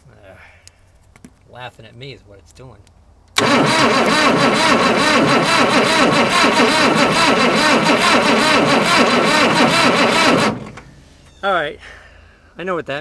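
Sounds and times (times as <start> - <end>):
diesel engine cranking: 3.4 - 11.4.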